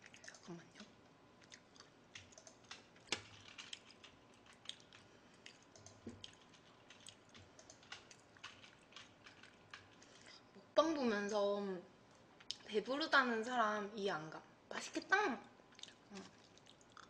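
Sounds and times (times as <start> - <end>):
typing on computer keyboard: 2.2 - 10.1.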